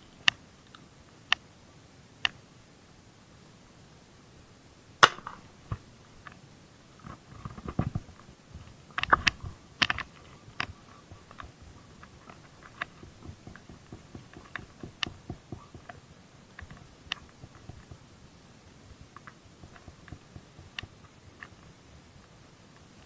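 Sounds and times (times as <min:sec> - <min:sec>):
crackly rustles: 0:05.0 - 0:23.0
fishing line winding clicks and taps: 0:09.0 - 0:16.0.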